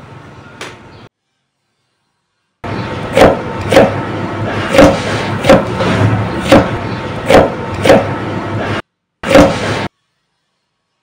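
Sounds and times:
cleaver chopping on wooden block: 4.7s - 5.8s, 6.4s - 8.1s.

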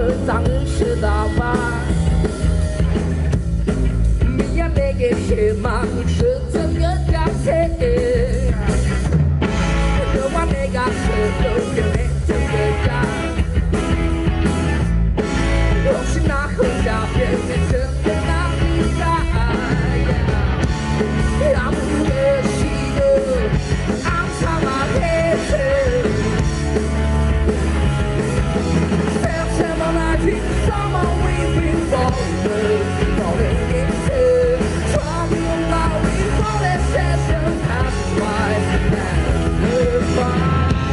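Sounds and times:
man singing: 0.0s - 2.8s, 4.3s - 9.1s, 9.9s - 13.6s, 15.7s - 26.6s, 29.0s - 40.9s
distorted electric guitar: 0.0s - 40.9s
drum kit: 0.0s - 40.9s.

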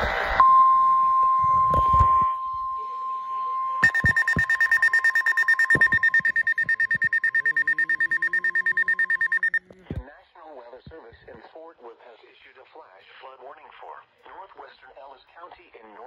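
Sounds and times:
rapid pulsing beep: 2.4s - 9.7s
high warning alert tone: 3.8s - 9.7s.

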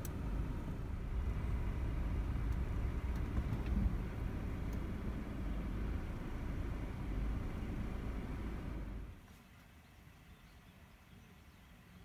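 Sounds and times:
vehicle engine running: 0.0s - 9.2s.

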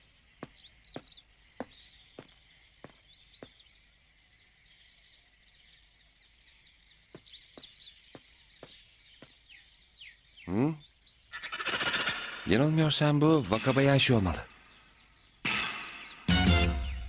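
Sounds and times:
birds chirping: 0.0s - 17.0s
footsteps: 0.4s - 3.6s.

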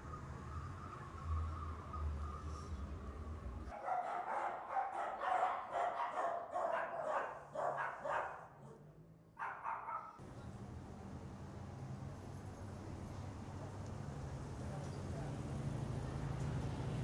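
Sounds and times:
dog barking rapidly: 3.7s - 8.5s, 9.4s - 10.2s.

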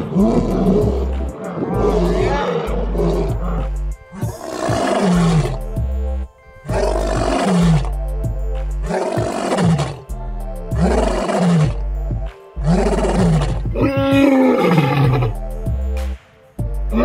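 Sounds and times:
lion roaring: 0.0s - 5.8s, 6.6s - 8.0s, 8.8s - 10.1s, 10.7s - 11.9s, 12.6s - 15.4s
background music with beat: 0.0s - 17.0s.

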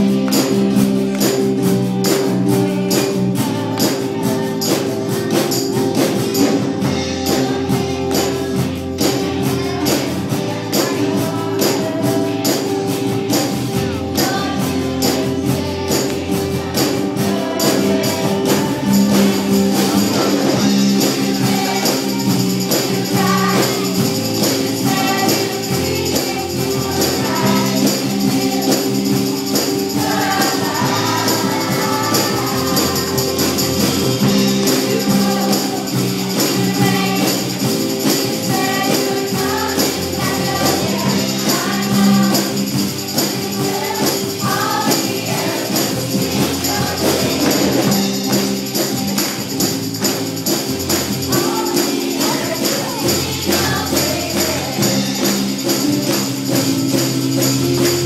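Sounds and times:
children's choir singing: 0.0s - 58.0s
instrumental accompaniment jingling beat: 0.0s - 58.0s.

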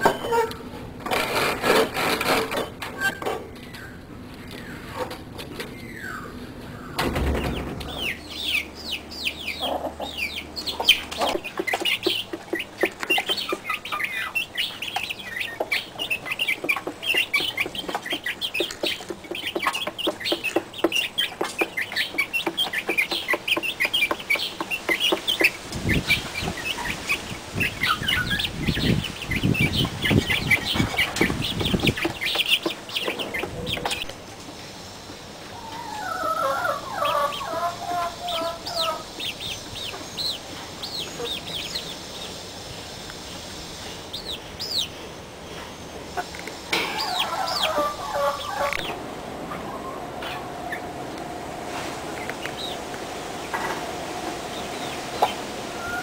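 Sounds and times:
hen clucking: 0.0s - 3.4s, 7.4s - 34.2s, 35.5s - 42.0s, 46.1s - 50.9s, 54.5s - 56.0s
chicks peeping: 0.0s - 50.9s, 52.2s - 53.8s, 54.4s - 56.0s.

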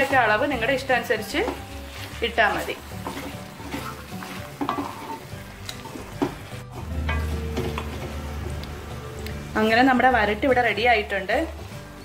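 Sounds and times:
wooden spatula scraping a pan: 0.0s - 10.3s
food sizzling in a pan: 0.0s - 12.0s.

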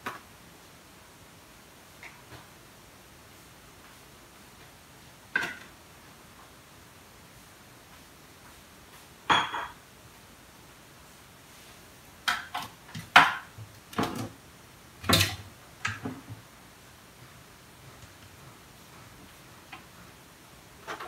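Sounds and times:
kitchenware knocking and clattering: 5.4s - 5.7s, 9.3s - 9.8s, 12.3s - 14.3s.

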